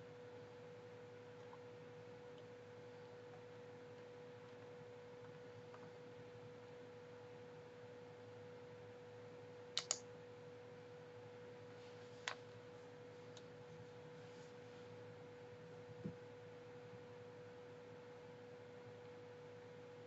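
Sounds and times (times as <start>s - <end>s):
faint steady hum: 0.0s - 20.0s
computer mouse clicks: 9.8s - 10.0s.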